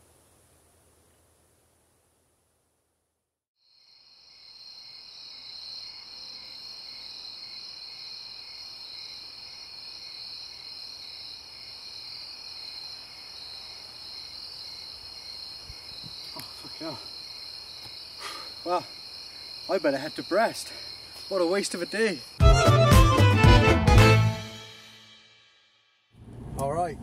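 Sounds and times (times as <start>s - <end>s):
crickets chirping: 3.6s - 22.4s.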